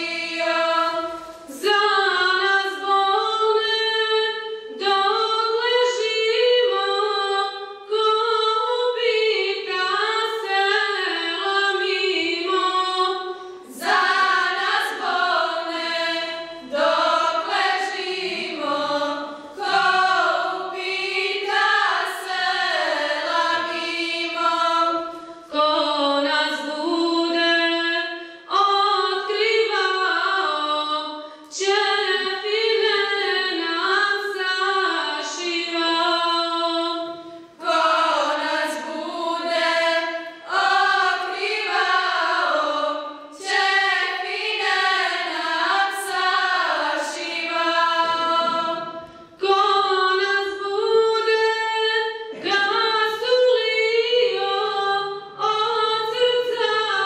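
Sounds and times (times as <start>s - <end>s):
choir singing a cappella: 0.0s - 57.0s.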